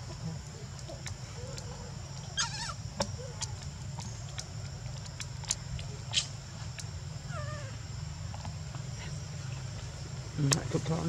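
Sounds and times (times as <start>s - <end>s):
faint high drone: 0.0s - 11.0s
steady low hum: 0.0s - 11.0s
wavering squeak: 2.4s - 3.2s.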